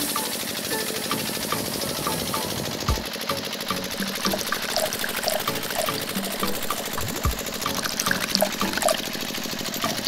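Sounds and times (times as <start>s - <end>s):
small motor running: 0.0s - 10.0s
liquid pouring into plastic bucket: 3.8s - 9.8s.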